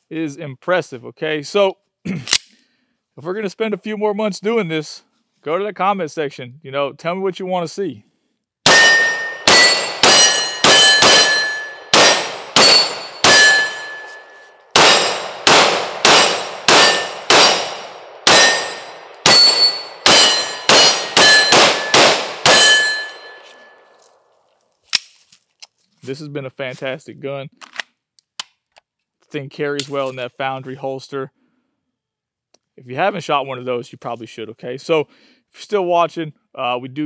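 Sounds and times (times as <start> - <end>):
pistol shots: 8.7 - 23.4
steel targets clanging: 8.7 - 23.8.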